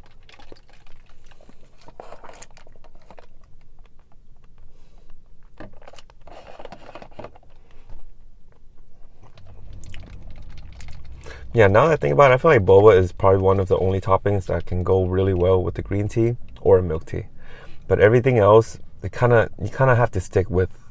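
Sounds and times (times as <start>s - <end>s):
close-miked chewing: 0.0s - 2.2s, 8.8s - 11.6s.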